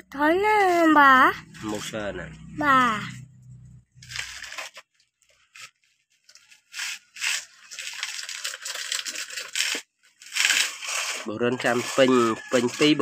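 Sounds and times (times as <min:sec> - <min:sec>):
sand poured into plastic toy: 0:06.8 - 0:13.0.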